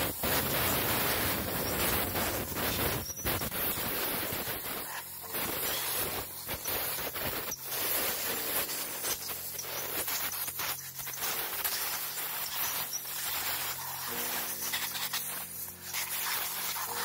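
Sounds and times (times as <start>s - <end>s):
compressed air hissing: 0.0s - 17.0s
faint sustained tones: 12.8s - 16.0s.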